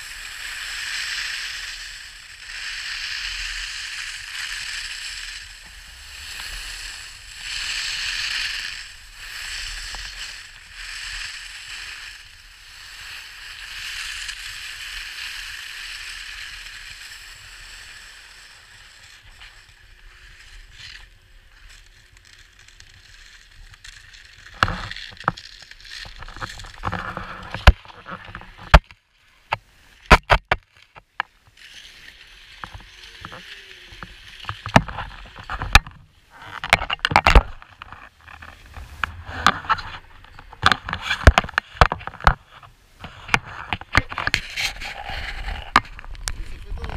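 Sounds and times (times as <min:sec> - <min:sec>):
skis scraping over snow: 0:00.0 - 0:30.2, 0:30.8 - 0:46.9
sharp clicks and knocks: 0:26.0 - 0:31.3, 0:34.4 - 0:44.8.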